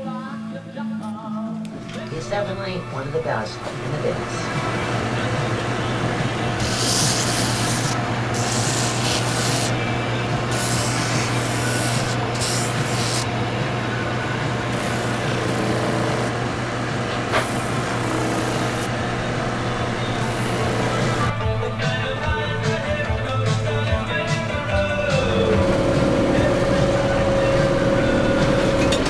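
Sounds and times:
machine motor hum: 1.7 - 29.0
sanding drum scraping leather boot: 6.5 - 13.3, 14.7 - 16.3, 20.2 - 21.3.

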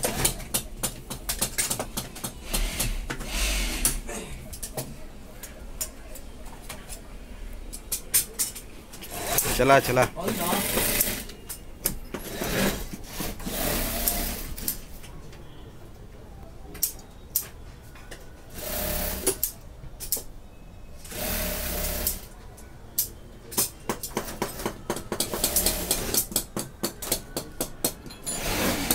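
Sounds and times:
sharp clicks and knocks: 0.0 - 7.0
industrial sewing machine running: 9.1 - 11.3, 12.3 - 14.6, 18.6 - 19.5, 21.1 - 22.2, 25.3 - 26.2, 28.4 - 28.9.

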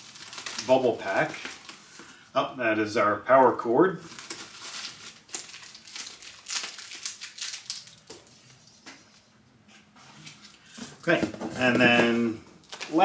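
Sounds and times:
bubble wrap crinkling: 0.0 - 2.2, 4.0 - 8.8, 10.2 - 13.0.

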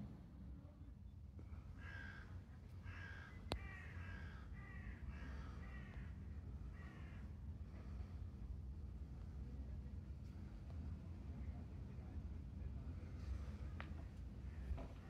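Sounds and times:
crow cawing: 1.8 - 6.0.

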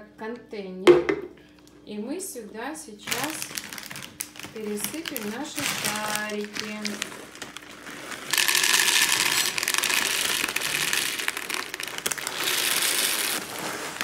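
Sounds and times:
plastic bag crinkling: 3.0 - 14.0
cereal rattling into plastic container: 3.1 - 14.0.

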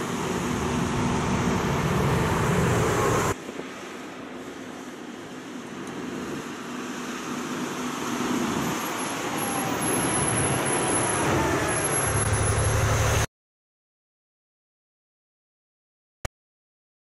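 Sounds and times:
dump truck engine passing: 0.0 - 3.4, 6.0 - 13.3.

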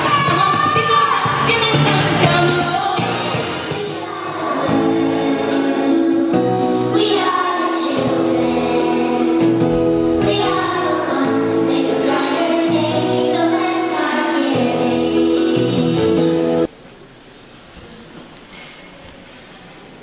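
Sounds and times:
children's choir singing: 1.2 - 16.7.

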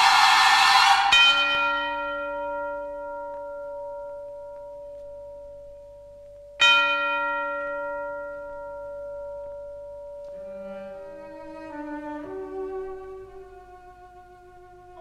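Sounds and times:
orchestral bell ringing: 0.0 - 5.6.

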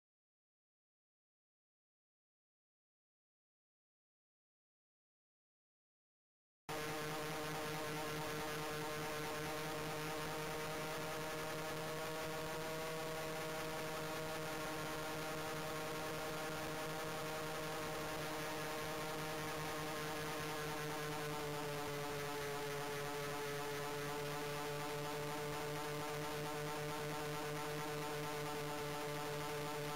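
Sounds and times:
model plane motors humming: 6.7 - 29.9.

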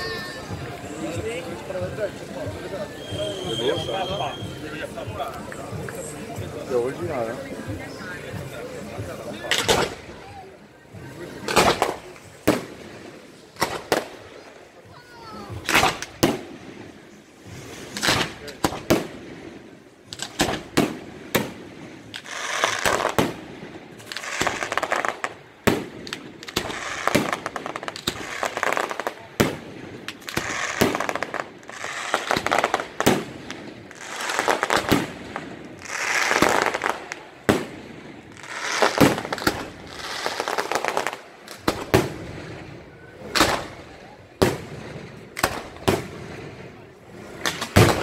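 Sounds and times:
firework crackling: 0.0 - 48.0.

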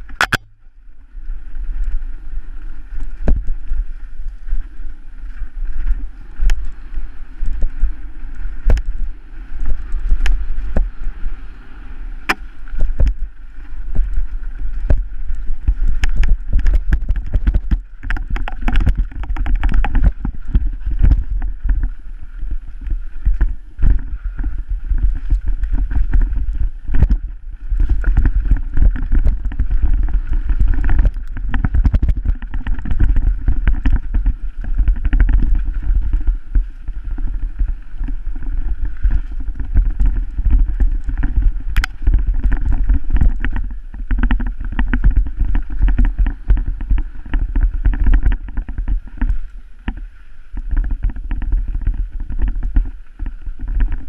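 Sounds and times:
wind rumble on microphone: 0.0 - 54.0
bike knocks and rattles: 14.7 - 22.0, 22.7 - 50.0, 50.6 - 54.0.

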